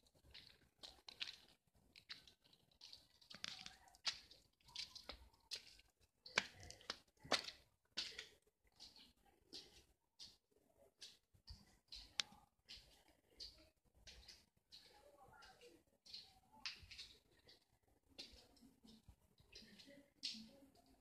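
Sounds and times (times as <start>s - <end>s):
footsteps on wet concrete: 0.0s - 17.6s.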